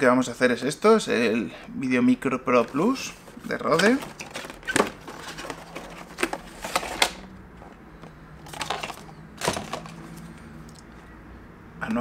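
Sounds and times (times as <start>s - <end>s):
packaging clicks taps and scrapes: 3.6s - 10.9s.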